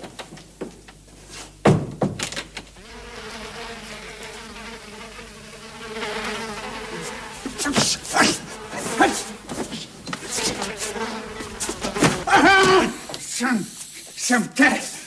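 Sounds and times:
housefly buzzing: 2.8s - 14.3s.

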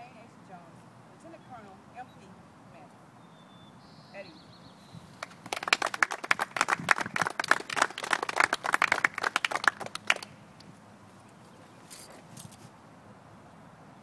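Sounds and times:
small group clapping: 5.2s - 10.4s.

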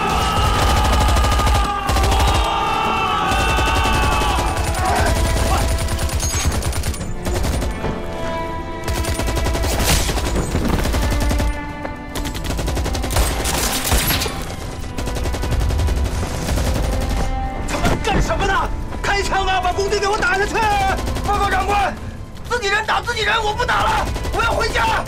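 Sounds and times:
automatic gunfire: 0.0s - 2.5s, 3.3s - 7.8s
dramatic background music: 0.0s - 25.0s.

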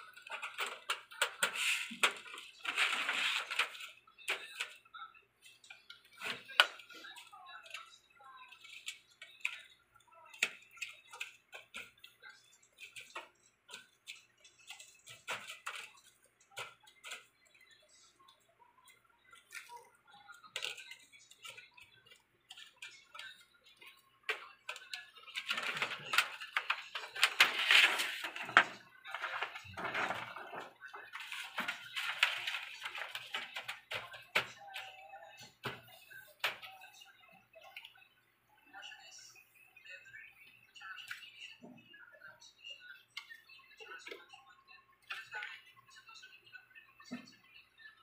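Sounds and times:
plastic sheet rustling: 0.2s - 4.7s, 24.4s - 34.9s.

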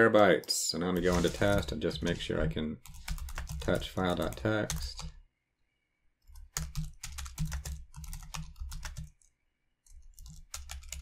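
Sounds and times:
typing on a computer keyboard: 2.8s - 5.1s, 6.2s - 11.0s.

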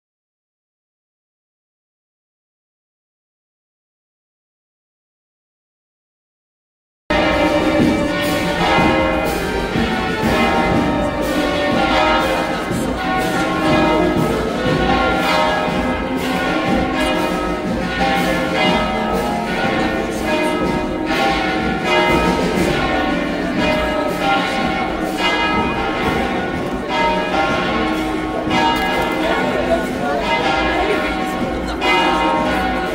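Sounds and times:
church bells pealing: 7.1s - 32.9s.

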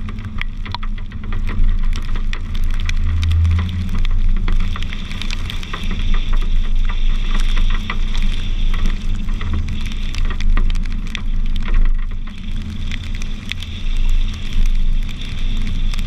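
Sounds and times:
raindrops ticking: 0.0s - 16.0s
wind and road noise rumble: 0.0s - 16.0s.

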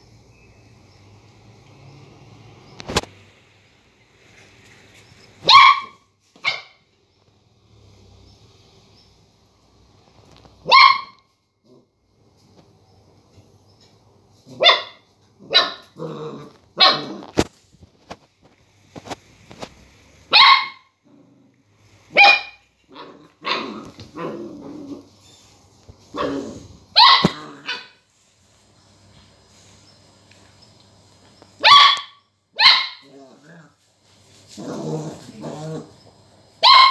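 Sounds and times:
puppy barking: 5.4s - 6.8s, 10.6s - 11.3s, 14.5s - 16.0s, 16.8s - 17.3s, 20.3s - 20.9s, 22.1s - 24.3s, 26.2s - 28.0s, 31.6s - 33.2s, 36.6s - 36.9s.

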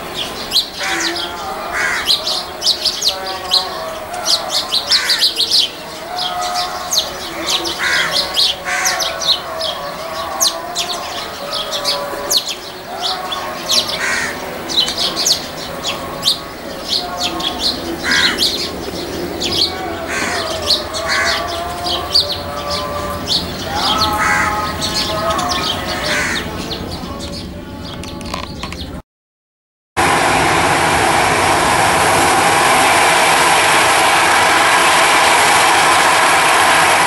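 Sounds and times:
birds chirping: 0.0s - 29.0s
distant jet rumble: 0.0s - 29.0s, 30.0s - 37.0s
harsh bird calls: 0.0s - 29.0s.

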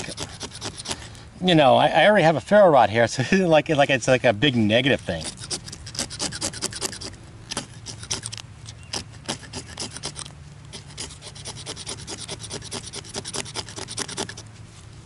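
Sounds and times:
knife scraping magnesium bar: 0.0s - 1.1s, 5.1s - 14.5s.

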